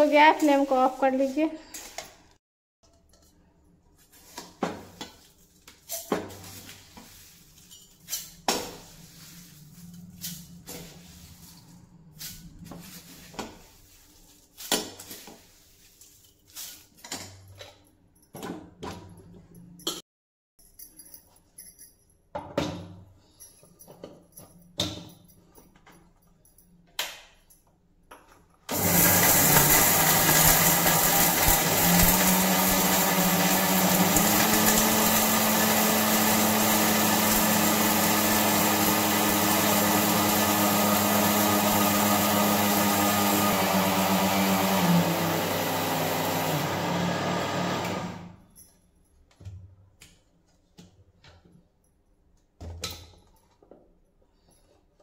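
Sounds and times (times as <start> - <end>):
mixer grinder motor grinding: 28.7 - 48.4.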